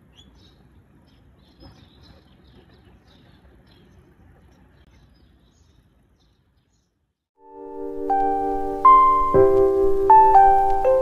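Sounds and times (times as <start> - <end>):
soft held chord: 7.4 - 11.0.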